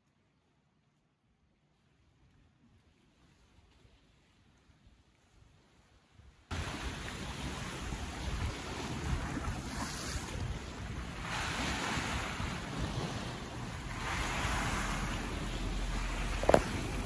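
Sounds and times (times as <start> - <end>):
sea waves washing: 6.5 - 17.0
wind buffeting microphone: 6.5 - 17.0.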